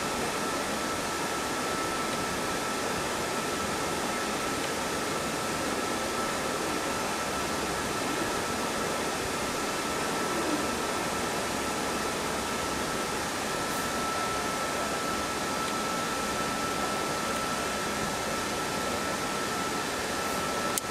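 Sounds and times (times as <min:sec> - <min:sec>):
thin high whine: 0:05.2 - 0:20.9.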